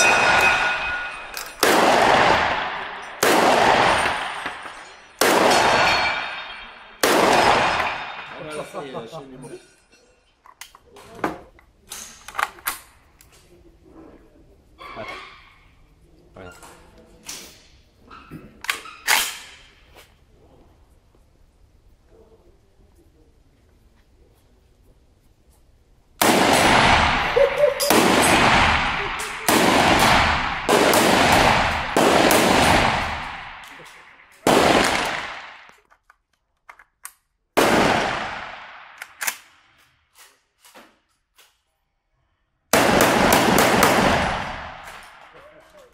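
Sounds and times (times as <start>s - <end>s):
shotgun shots echoing: 0.0s - 8.6s, 26.2s - 35.8s, 37.6s - 39.6s, 42.7s - 45.3s
shotgun metallic clacks: 38.0s - 40.8s.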